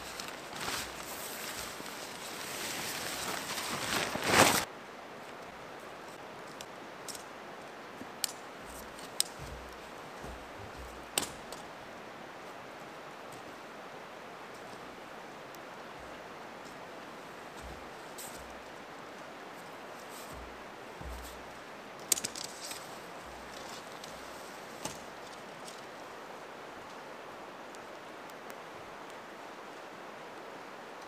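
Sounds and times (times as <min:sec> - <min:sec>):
nylon tent fabric rustling: 0:00.0 - 0:04.7, 0:08.6 - 0:11.7, 0:15.8 - 0:25.6
tent pole clicks: 0:08.1 - 0:11.7, 0:17.6 - 0:25.9.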